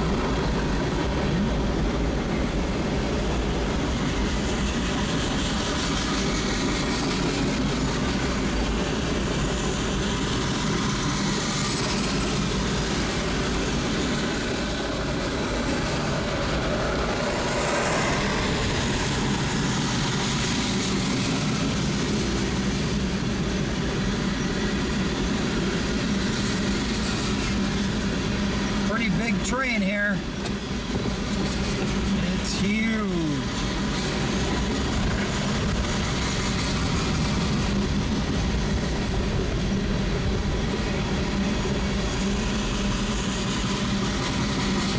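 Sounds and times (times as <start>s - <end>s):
freight train rumbling past: 0.0s - 44.9s.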